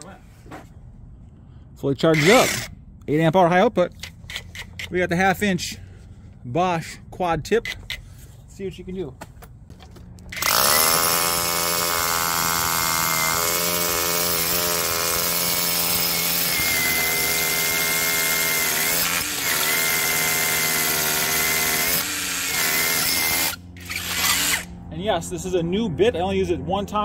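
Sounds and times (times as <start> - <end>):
rotary hammer drilling into stone: 2.2 - 2.7, 10.3 - 24.7.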